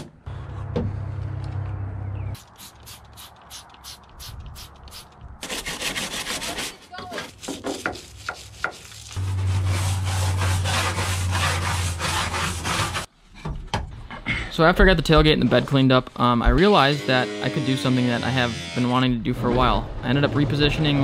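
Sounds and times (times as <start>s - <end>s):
stiff brush scrubbing: 2.4s - 13.1s.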